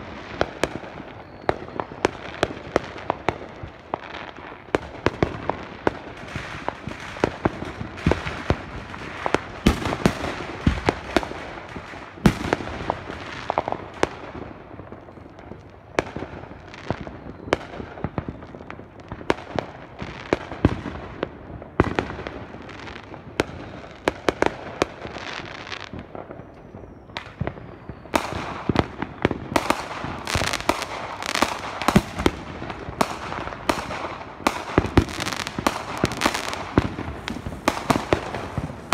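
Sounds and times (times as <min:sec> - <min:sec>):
fireworks crackling: 0:00.0 - 0:38.9
firecracker bangs: 0:28.1 - 0:38.9.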